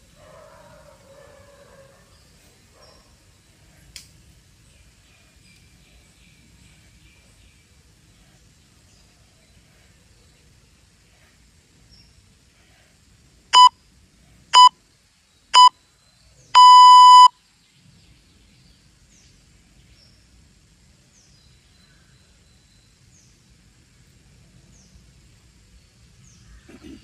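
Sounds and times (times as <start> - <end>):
interval timer beeping: 16.6 - 17.3.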